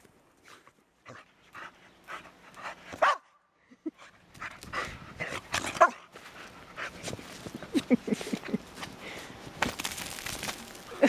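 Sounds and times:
dog barking: 3.0s - 3.4s.

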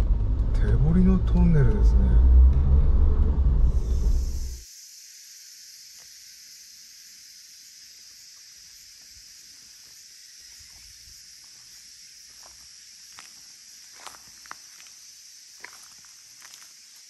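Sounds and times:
car cabin rumble: 0.0s - 4.6s
insects hissing: 3.7s - 17.0s.

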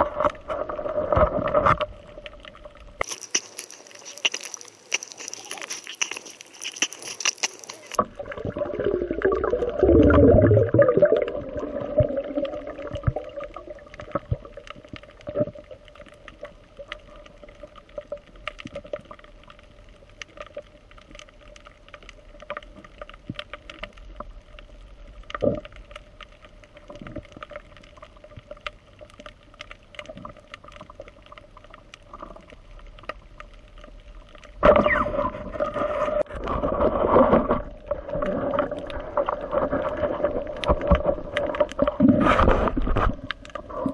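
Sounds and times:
low underwater rumbling: 0.0s - 3.0s, 7.8s - 43.9s
rushing water: 0.0s - 19.5s, 34.4s - 43.9s
clicks and crackles: 0.0s - 43.9s
steady underwater hum: 0.0s - 43.9s.

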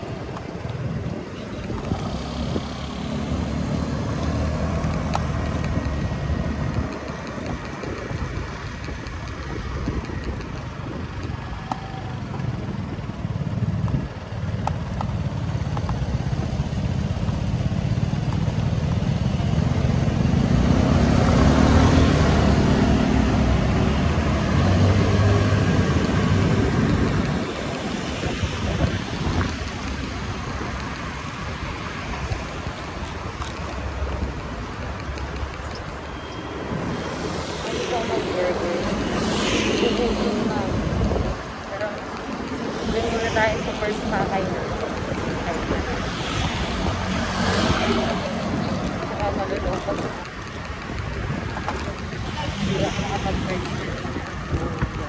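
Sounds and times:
scooter engine and road rumble: 0.0s - 55.0s.

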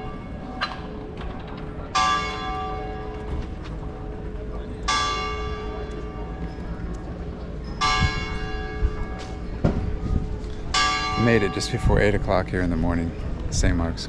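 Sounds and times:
church bell tolling: 0.0s - 6.8s, 7.7s - 10.0s, 10.6s - 12.3s.

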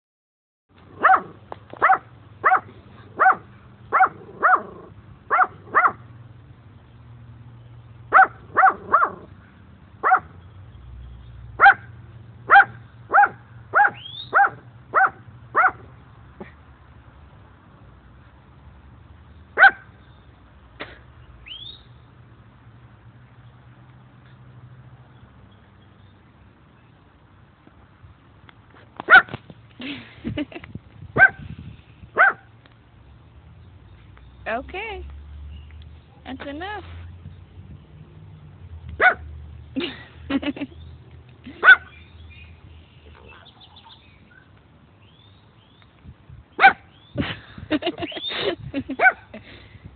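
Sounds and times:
dog barking: 1.0s - 6.0s, 8.1s - 9.3s, 10.0s - 10.4s, 11.6s - 11.9s, 12.5s - 15.9s, 19.6s - 19.9s, 29.1s - 29.3s, 31.2s - 31.4s, 32.2s - 32.5s, 39.0s - 39.2s, 41.6s - 41.9s, 46.6s - 46.9s, 49.0s - 49.3s.

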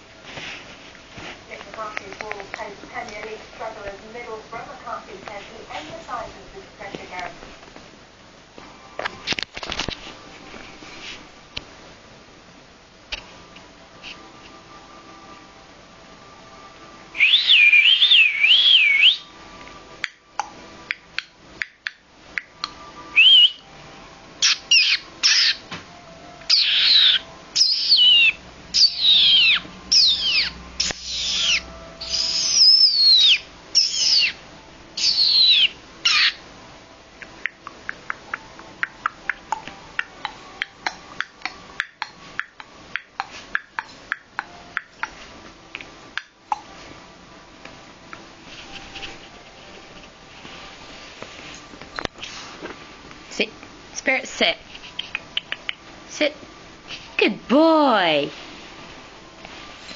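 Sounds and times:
puppy whining: 26.5s - 34.4s, 35.0s - 36.4s.

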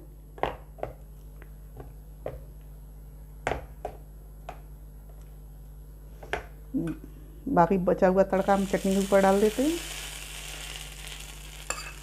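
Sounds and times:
low electrical hum: 0.0s - 12.0s
spoon clinking against bowl: 11.7s - 12.0s.

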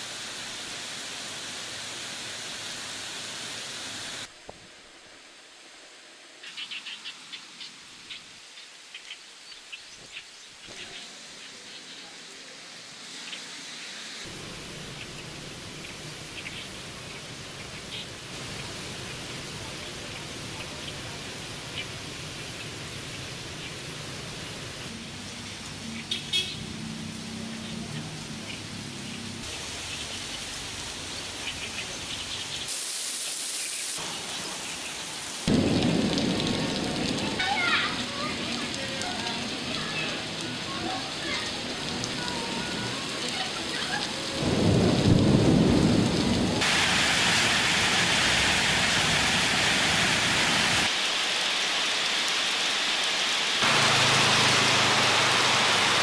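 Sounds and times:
rain hissing: 0.0s - 56.0s
street traffic rumble: 14.3s - 32.7s, 53.6s - 56.0s.

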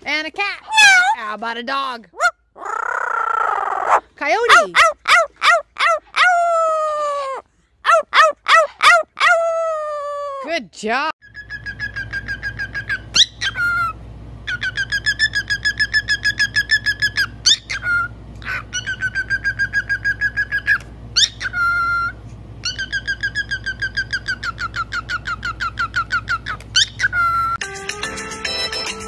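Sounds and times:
low steady hum: 0.0s - 27.6s
cockatiel trilling: 11.3s - 27.6s.

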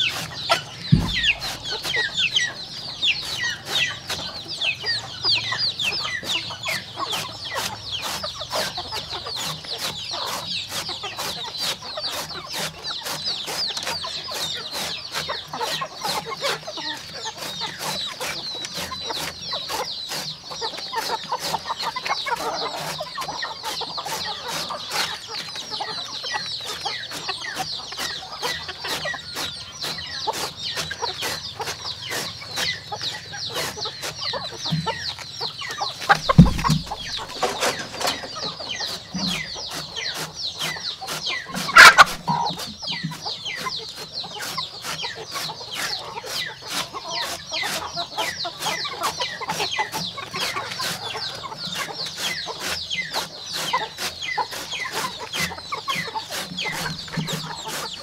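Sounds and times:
chicks peeping: 0.0s - 58.0s
thump: 0.9s - 2.1s.

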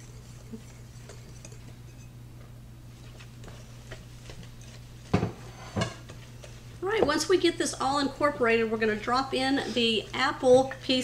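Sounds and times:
whisk ticking against bowl: 0.0s - 2.2s.

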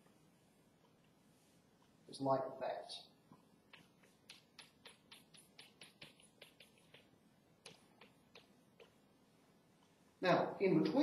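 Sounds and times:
chalk tapping on blackboard: 3.7s - 9.0s.

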